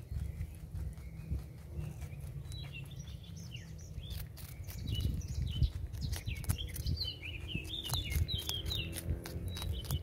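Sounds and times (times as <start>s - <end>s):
rabbit chewing crunchy vegetable: 0.0s - 10.0s
small birds chirping: 0.0s - 10.0s.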